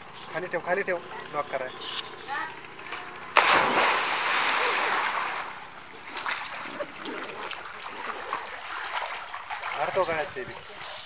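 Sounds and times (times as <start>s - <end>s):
churning water: 0.0s - 11.0s
loud splash into well water: 3.4s - 10.1s.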